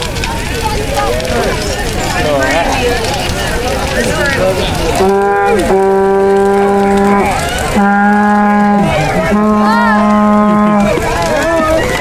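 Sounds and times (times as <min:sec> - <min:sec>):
bonfire crackling: 0:00.0 - 0:12.0
long held notes: 0:05.0 - 0:11.0.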